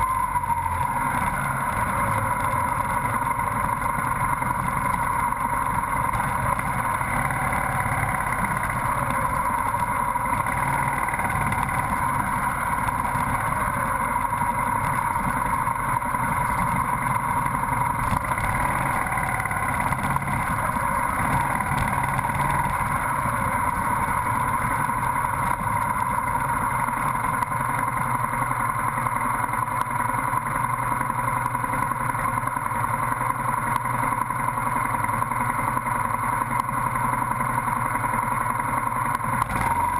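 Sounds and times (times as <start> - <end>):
motorcycle engine running: 0.0 - 39.9
road and wind noise: 0.0 - 39.9.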